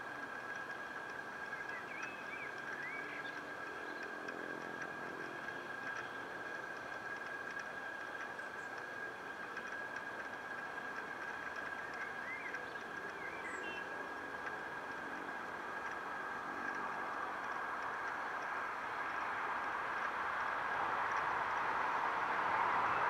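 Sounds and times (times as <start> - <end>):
far-off traffic: 0.0 - 23.0.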